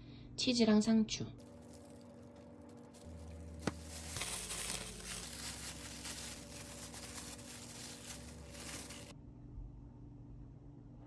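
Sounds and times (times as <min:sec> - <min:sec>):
plastic crinkling and rustling: 0:01.4 - 0:09.1.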